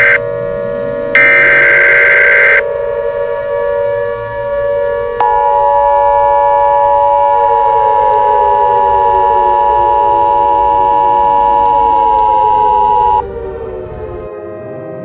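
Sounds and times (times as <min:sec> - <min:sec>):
screechy alert data burst: 0:00.0 - 0:00.2, 0:01.2 - 0:02.6, 0:05.2 - 0:13.2
two-tone alert tone: 0:00.0 - 0:00.2, 0:01.2 - 0:02.6, 0:05.2 - 0:13.2
siren-like wail: 0:00.0 - 0:14.3.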